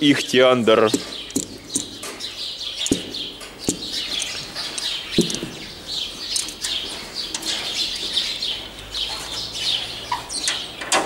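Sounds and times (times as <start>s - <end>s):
small birds chirping: 0.0s - 11.0s
dull knocks: 0.9s - 2.0s, 2.8s - 4.0s, 5.2s - 5.6s.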